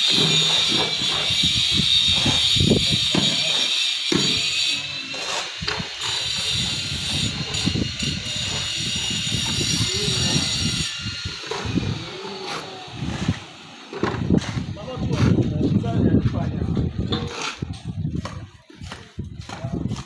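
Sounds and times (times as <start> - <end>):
people talking: 7.6 - 10.8, 11.6 - 13.4, 14.5 - 20.0.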